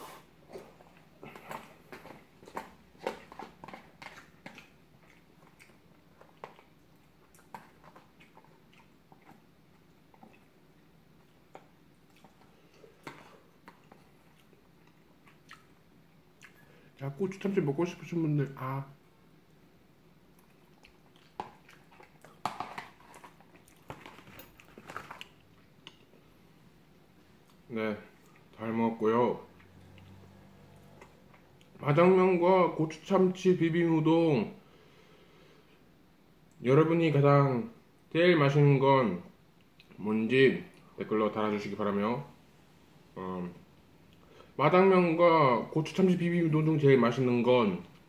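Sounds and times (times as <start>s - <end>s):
man chewing noodles: 0.0s - 16.8s, 20.3s - 26.4s.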